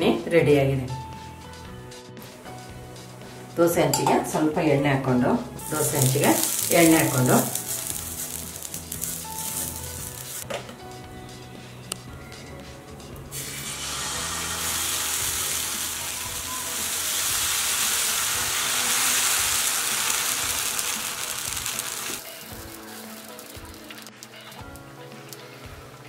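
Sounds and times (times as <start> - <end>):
soft background music: 0.0 - 26.0
batter sizzling on hot pan: 5.6 - 10.4, 13.3 - 25.9.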